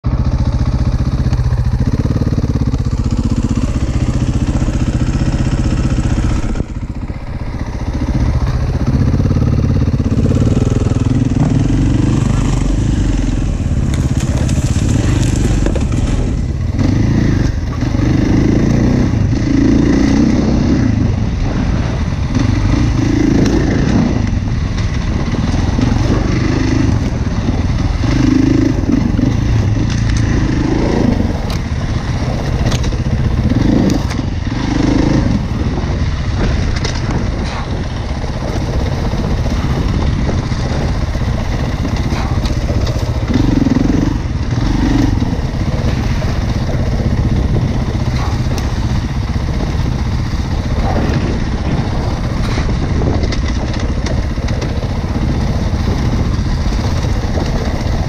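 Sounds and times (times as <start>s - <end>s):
motorcycle engine revving: 0.0s - 58.0s
light clatter from bike: 13.8s - 16.3s, 29.6s - 30.4s, 32.4s - 34.3s, 36.3s - 43.3s, 50.2s - 58.0s.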